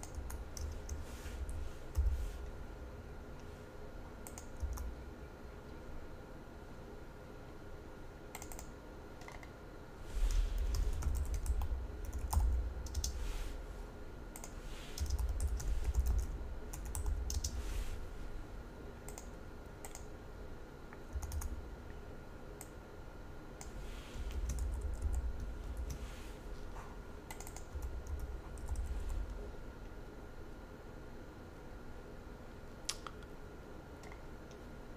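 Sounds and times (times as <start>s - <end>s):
keyboard typing: 0.0s - 2.2s, 4.2s - 4.9s, 8.3s - 9.5s, 10.6s - 13.2s, 14.4s - 17.6s, 19.1s - 20.1s, 21.1s - 21.6s, 23.6s - 26.0s, 27.3s - 29.3s.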